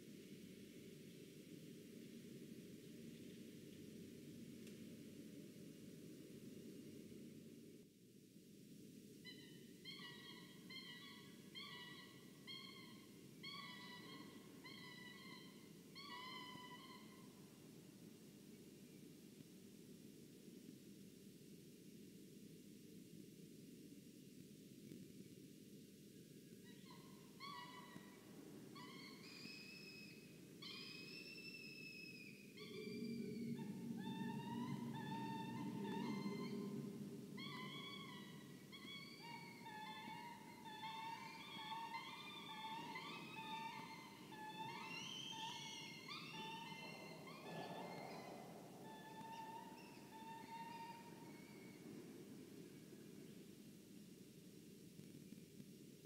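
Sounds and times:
low background noise: 0.0 - 56.0
falcon calling: 28.8 - 51.9.

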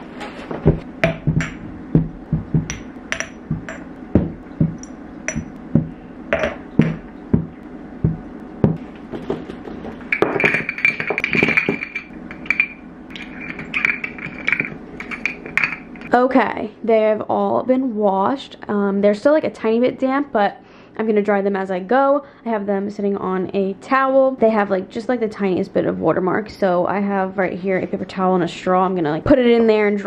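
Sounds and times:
glass jars clinking: 1.0 - 1.6, 2.6 - 3.9, 4.6 - 5.6, 6.4 - 7.0, 9.9 - 16.1.

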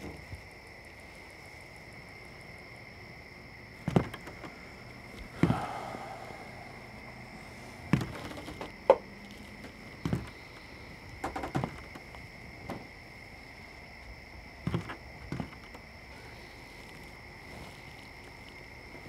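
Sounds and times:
boot footsteps on wooden floor: 7.9 - 10.4.

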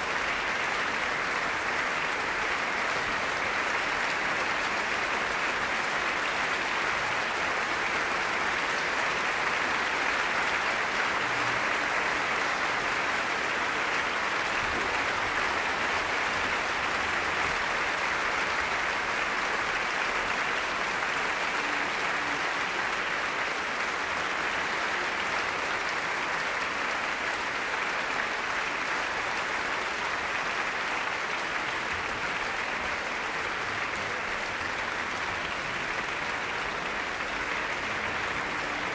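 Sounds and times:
audience applauding: 0.0 - 38.9.

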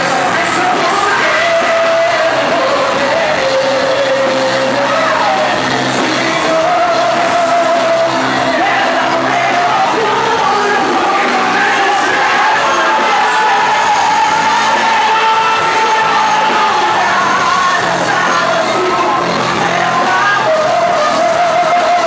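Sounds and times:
amplified worship music: 0.0 - 22.0
congregation shouting and yelling: 0.0 - 22.0
woman singing into a microphone: 0.0 - 22.0.

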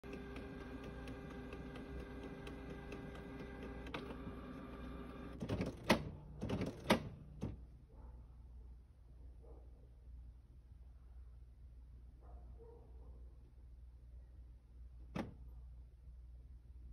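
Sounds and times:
printer clunks and rattles: 0.0 - 7.6
printer humming and ticking: 0.0 - 7.6.

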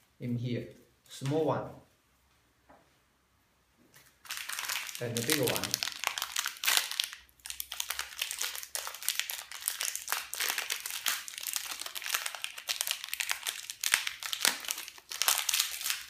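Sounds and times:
aluminium foil crinkling and tearing: 4.2 - 16.0.

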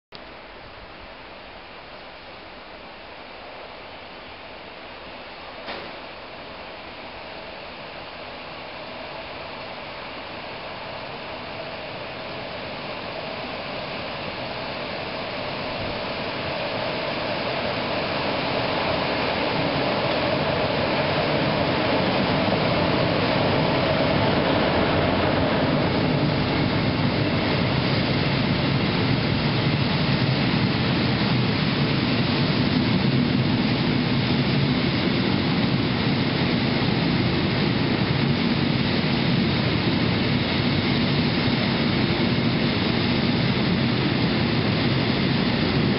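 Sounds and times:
electric locomotive passing: 2.0 - 30.4
train wheels rolling on rails: 5.5 - 6.1, 8.2 - 40.4.

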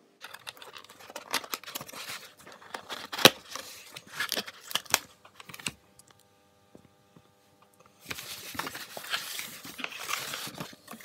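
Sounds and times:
cardboard scraping and tearing: 8.0 - 11.0.

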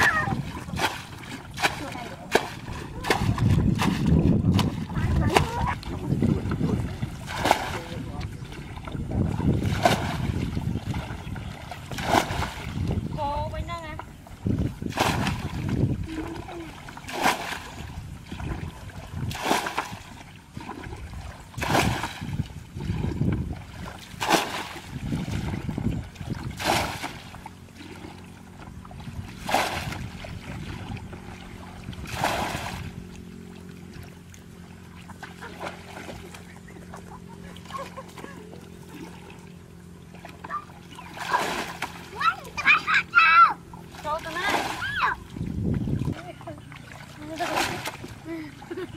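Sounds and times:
bucket sloshing scoops: 26.3 - 28.2, 29.3 - 30.8, 32.0 - 32.9, 40.2 - 42.7.

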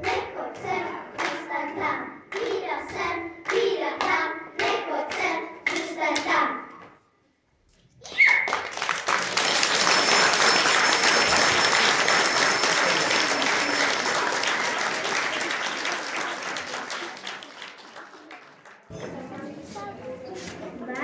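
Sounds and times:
audience applauding: 8.0 - 18.9.

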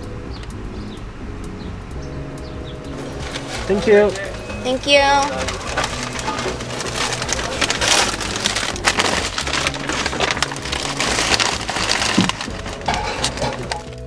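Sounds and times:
background music: 0.0 - 14.0
paper bag crinkling: 2.9 - 14.0.

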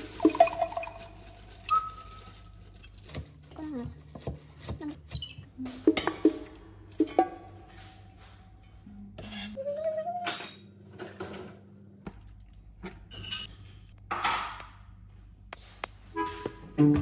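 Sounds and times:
metal utensils clinking: 13.0 - 14.8.

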